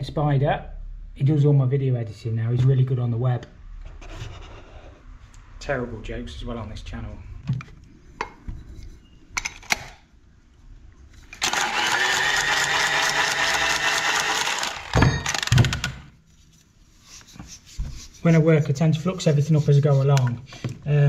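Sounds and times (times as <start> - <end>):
power tool running on copper pipe: 11.4 - 16.0.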